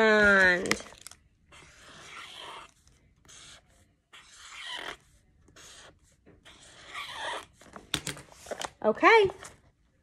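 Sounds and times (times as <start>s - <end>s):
pen scratching on paper: 1.5s - 7.7s.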